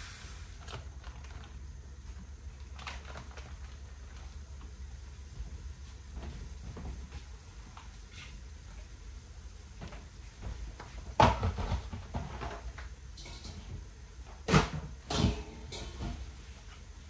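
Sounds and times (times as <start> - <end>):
objects clattering: 9.8 - 16.7.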